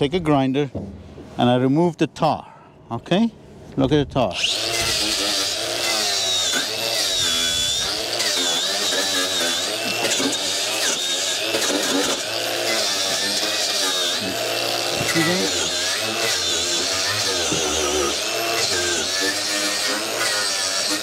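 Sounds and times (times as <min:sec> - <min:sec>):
angle grinder wire brush on steel: 0:04.4 - 0:21.0.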